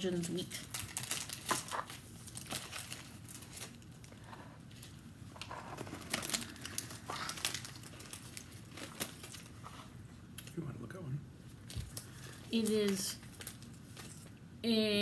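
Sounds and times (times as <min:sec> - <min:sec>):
plastic snack packet crinkling: 0:00.2 - 0:09.6, 0:11.6 - 0:14.3.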